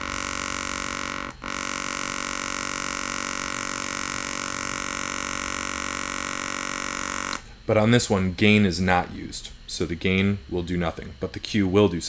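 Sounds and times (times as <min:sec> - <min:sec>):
synthesizer tone with notch sweep: 0:00.0 - 0:07.8.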